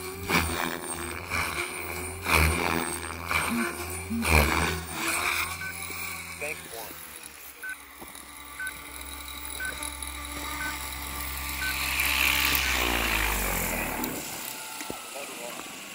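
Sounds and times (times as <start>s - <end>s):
rc helicopter rotors humming: 0.0s - 15.9s
short beeps: 3.5s - 4.8s.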